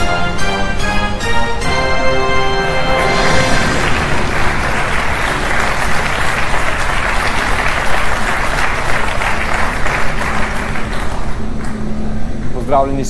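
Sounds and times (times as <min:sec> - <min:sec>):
audience applauding: 0:02.7 - 0:11.8.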